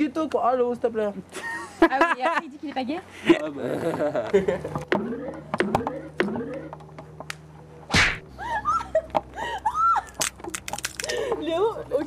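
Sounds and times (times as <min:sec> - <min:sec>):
high-pitched squeals and laughter: 0:08.3 - 0:10.3.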